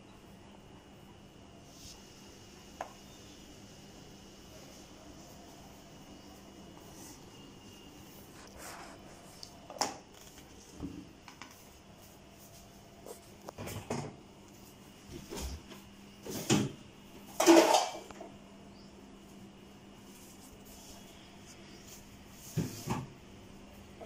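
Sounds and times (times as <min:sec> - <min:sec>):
faint steady hum: 0:00.0 - 0:24.0
dishes clattering: 0:17.3 - 0:18.1.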